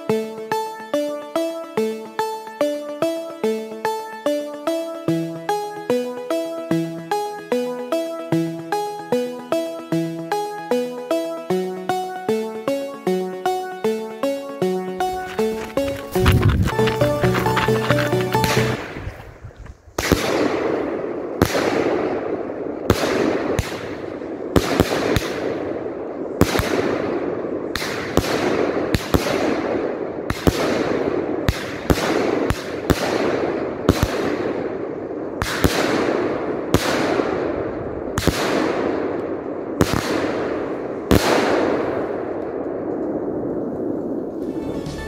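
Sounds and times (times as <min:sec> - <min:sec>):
continuous rush of noise: 0:14.8 - 0:20.0
firework bangs: 0:20.0 - 0:22.0.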